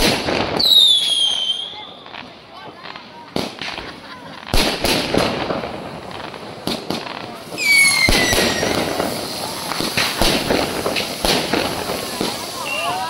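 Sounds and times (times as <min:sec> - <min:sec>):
whistling firework: 0:00.0 - 0:02.4, 0:04.6 - 0:13.0
fireworks bangs: 0:00.0 - 0:13.0.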